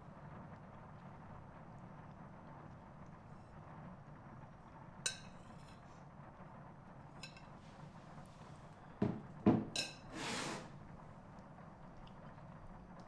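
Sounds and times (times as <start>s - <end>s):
low room hum: 0.0s - 13.0s
forks clinking on plates: 7.2s - 7.5s, 9.7s - 10.1s
dull knock: 9.0s - 9.7s.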